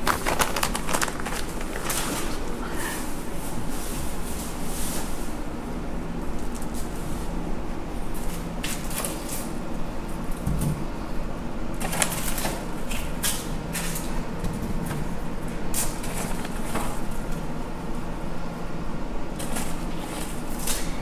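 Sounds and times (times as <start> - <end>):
salt sprinkling patter: 0.0 - 2.2.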